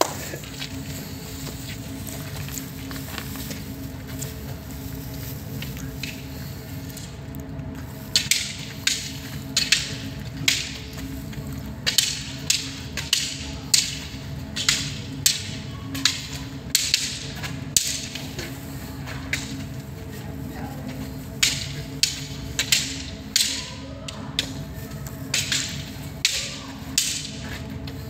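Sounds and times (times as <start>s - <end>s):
wooden sticks clacking: 8.0s - 20.0s, 20.9s - 28.0s.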